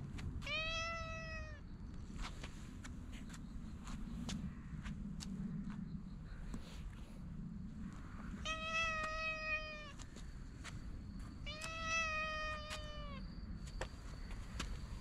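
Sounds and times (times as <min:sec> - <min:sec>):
cat meowing: 0:00.4 - 0:01.6, 0:08.4 - 0:10.0, 0:11.4 - 0:13.2.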